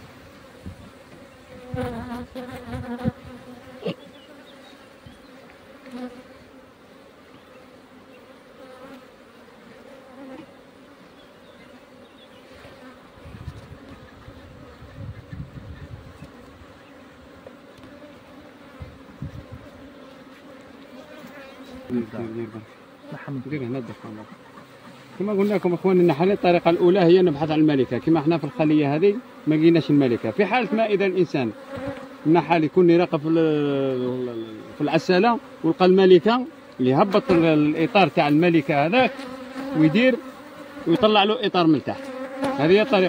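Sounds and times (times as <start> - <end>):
honeybees buzzing: 0.0 - 43.0
knocks and clicks on hive: 42.0 - 42.6.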